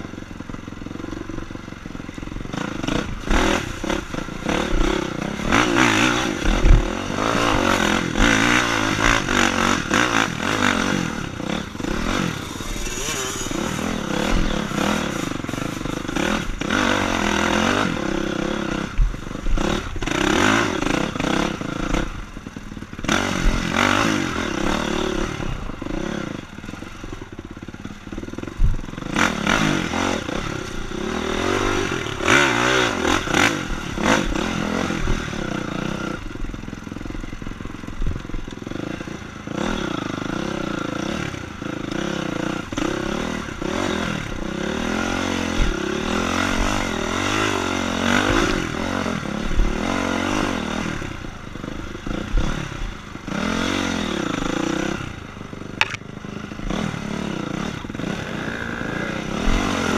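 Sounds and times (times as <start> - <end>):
dirt bike engine revving: 0.0 - 59.9
knocks and clatter from bike: 55.7 - 56.1.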